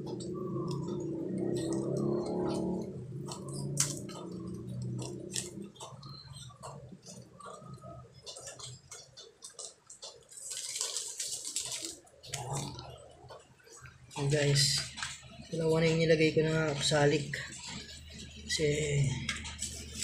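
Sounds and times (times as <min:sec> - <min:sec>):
low hum: 0:00.0 - 0:08.9.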